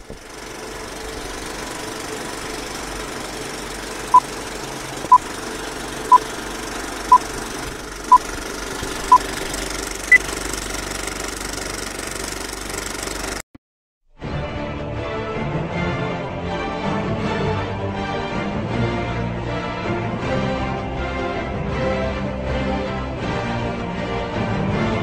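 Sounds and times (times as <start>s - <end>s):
film projector clatter with hiss: 0.0s - 13.4s.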